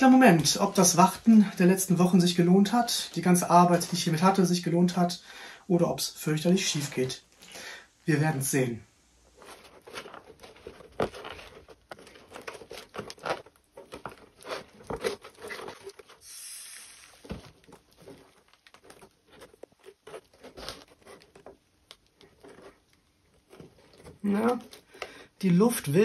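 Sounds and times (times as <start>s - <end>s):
dried paste crackling: 0.0s - 26.0s
air hissing out: 16.2s - 17.4s.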